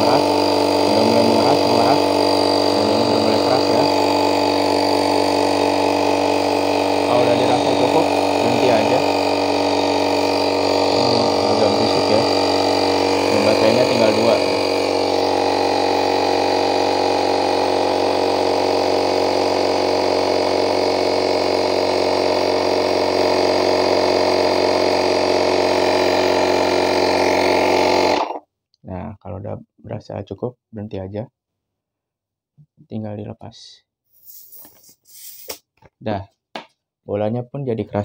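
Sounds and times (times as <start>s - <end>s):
electric air pump buzzing: 0.0s - 28.5s, 34.1s - 35.7s.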